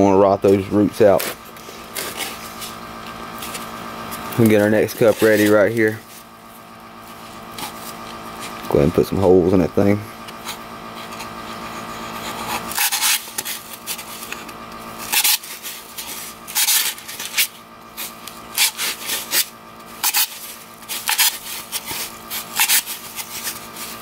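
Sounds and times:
skewer squeaking through foam cup: 0:16.5 - 0:24.0.

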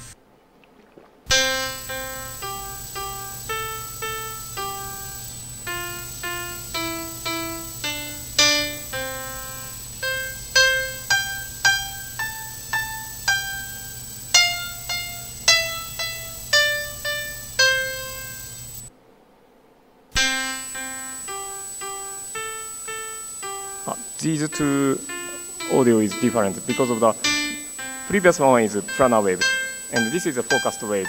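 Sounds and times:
steady low hum: 0:00.0 - 0:31.0
piano-like melody: 0:01.3 - 0:18.8, 0:20.2 - 0:31.0
thin high-pitched tone: 0:20.2 - 0:31.0.

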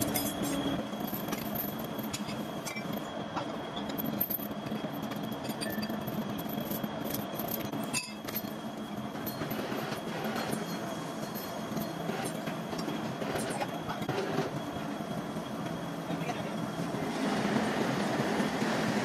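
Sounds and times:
factory machinery running: 0:00.0 - 0:19.0
high whine: 0:00.0 - 0:19.0
metallic clinks: 0:03.9 - 0:08.6, 0:10.3 - 0:12.4.

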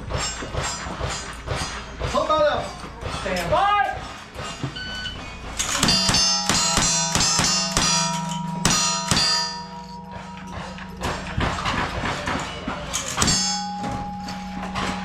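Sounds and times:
steel targets ringing: 0:04.4 - 0:15.0
electronic timer beep: 0:04.8 - 0:05.3.

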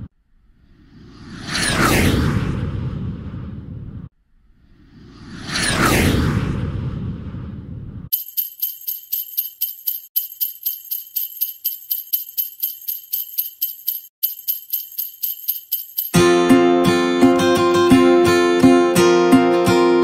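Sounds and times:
whoosh: 0:00.3 - 0:08.1
jingle bells shaken: 0:08.1 - 0:16.4
acoustic guitar music: 0:16.2 - 0:20.0.

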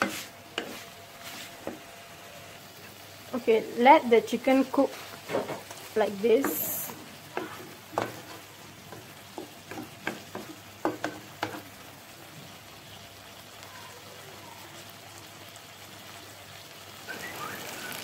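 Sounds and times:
spatula scraping a pan: 0:00.0 - 0:01.8, 0:04.7 - 0:11.8
chicken frying in a pan: 0:00.0 - 0:18.0.

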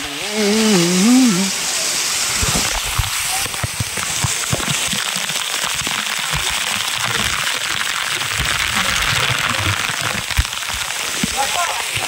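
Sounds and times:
water spattering on microphone: 0:01.9 - 0:12.0.

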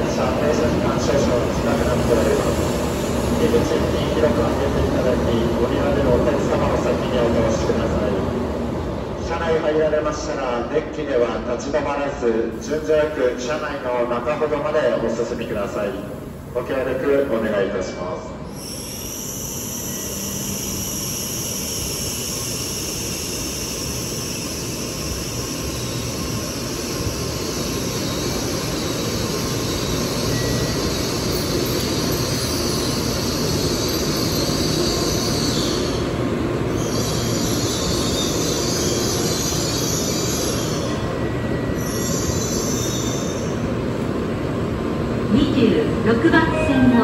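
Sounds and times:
train rushing rumble: 0:00.0 - 0:11.5
high-pitched train whine: 0:12.5 - 0:44.0, 0:45.0 - 0:47.0.

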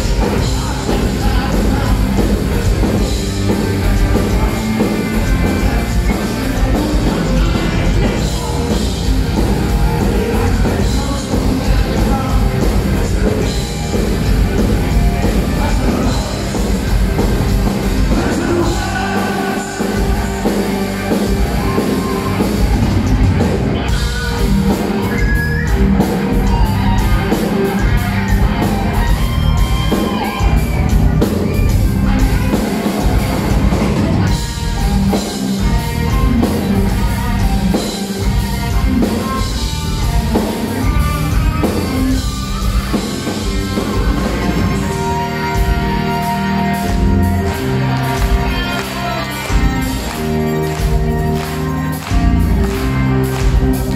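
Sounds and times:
person singing lead vocal: 0:00.0 - 0:22.7
bass guitar: 0:00.0 - 0:53.9
distorted electric guitars: 0:00.0 - 0:53.9.

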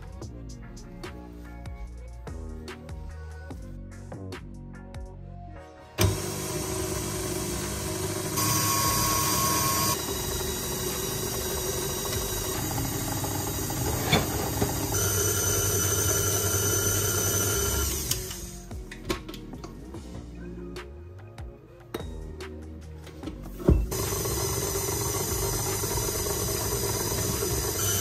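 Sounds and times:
stand mixer motor whine: 0:06.0 - 0:18.5, 0:23.9 - 0:28.0.

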